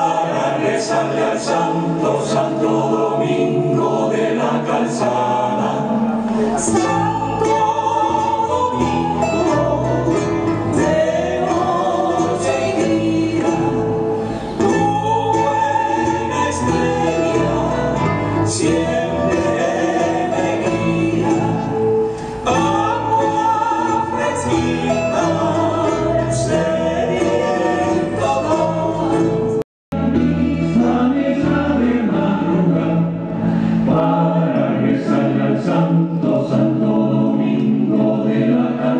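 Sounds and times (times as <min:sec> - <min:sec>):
strummed guitars: 0:00.0 - 0:38.9
voices singing together: 0:00.0 - 0:38.9.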